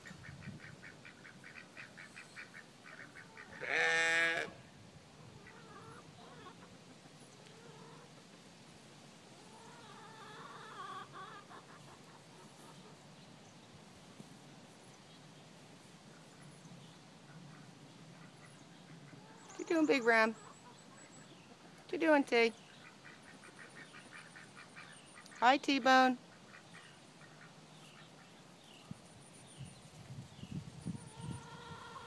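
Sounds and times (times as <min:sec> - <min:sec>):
faint fowl calls: 0:00.0 - 0:08.4, 0:09.4 - 0:13.1, 0:16.0 - 0:21.9, 0:22.5 - 0:29.0, 0:30.8 - 0:32.0
sheep bleating: 0:03.6 - 0:04.6.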